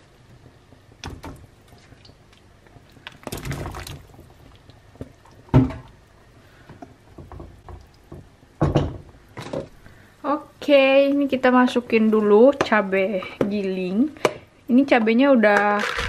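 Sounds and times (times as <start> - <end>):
water splashing in a pan: 2.9 - 6.0.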